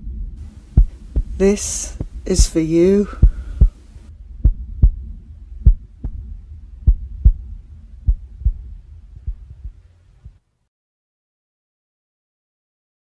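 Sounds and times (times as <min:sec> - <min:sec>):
heartbeat thumps: 0:00.0 - 0:10.4
low rumble: 0:00.0 - 0:10.4.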